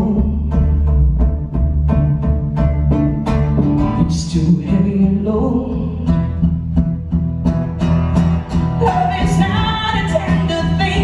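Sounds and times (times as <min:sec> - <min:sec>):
woman singing: 0:00.0 - 0:00.9, 0:04.0 - 0:06.4, 0:08.8 - 0:11.0
electric guitar: 0:00.0 - 0:11.0
strummed acoustic guitar: 0:00.0 - 0:11.0.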